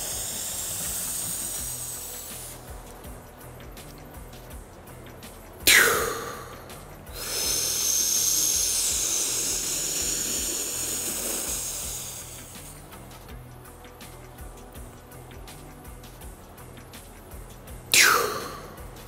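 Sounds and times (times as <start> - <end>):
deep breath inhaled: 7.1 - 12.5.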